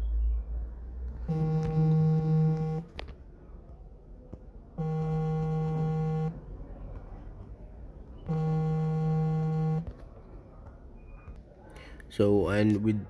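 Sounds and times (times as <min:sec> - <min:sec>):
phone vibrating buzz: 0:01.2 - 0:02.9, 0:04.8 - 0:06.4, 0:08.2 - 0:09.9.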